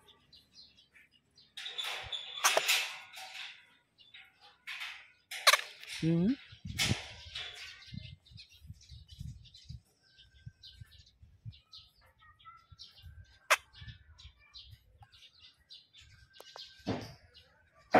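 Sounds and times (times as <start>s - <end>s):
small birds chirping: 0.0s - 17.9s
sharp click: 2.4s - 2.8s, 5.4s - 6.0s.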